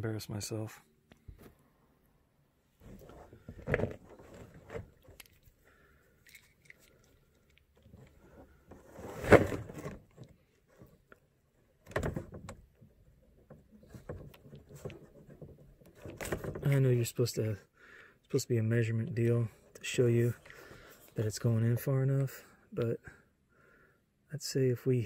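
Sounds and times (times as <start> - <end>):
plastic pipe handling noise: 2.8 - 17.0.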